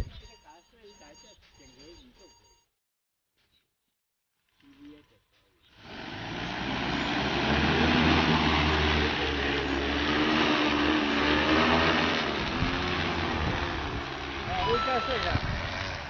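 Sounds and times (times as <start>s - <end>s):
drone propellers humming: 5.8s - 16.0s.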